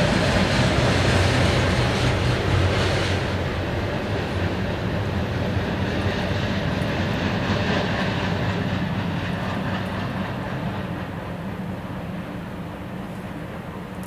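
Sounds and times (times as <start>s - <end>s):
train cars rumbling past: 0.0s - 14.0s.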